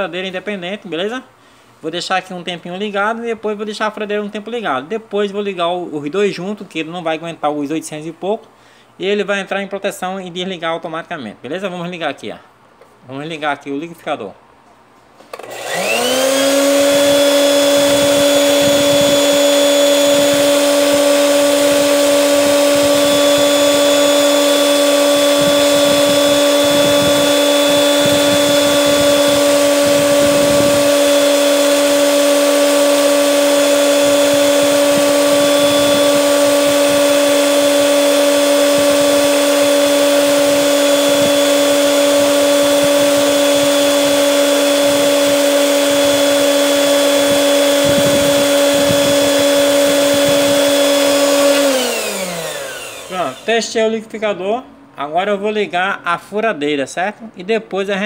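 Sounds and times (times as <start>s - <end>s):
blender motor whining: 15.3s - 53.8s.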